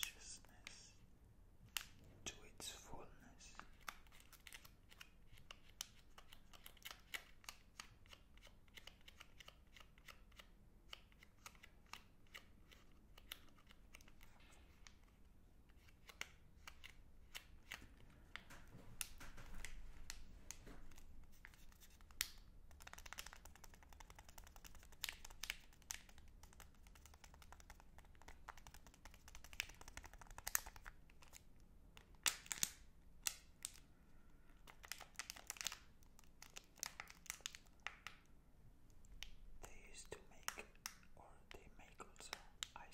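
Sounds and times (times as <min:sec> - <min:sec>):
plastic wrapper crinkling: 0:17.7 - 0:33.9, 0:34.5 - 0:38.3.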